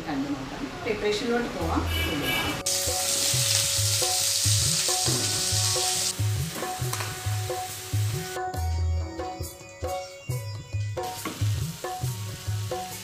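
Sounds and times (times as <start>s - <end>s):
food sizzling in a pan: 2.2s - 8.4s, 11.0s - 13.0s
background music with low beat: 2.6s - 13.0s.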